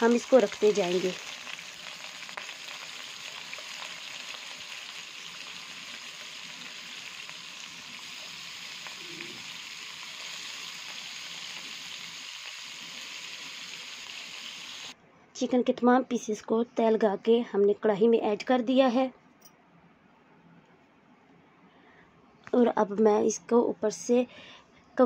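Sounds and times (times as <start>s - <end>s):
chicken sizzling in hot oil: 0.0s - 15.0s.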